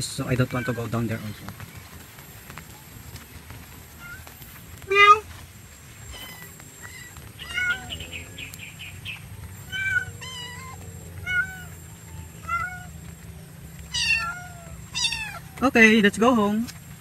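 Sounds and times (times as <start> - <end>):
kitten meowing: 6.1 - 8.2, 9.6 - 12.9, 13.9 - 15.6.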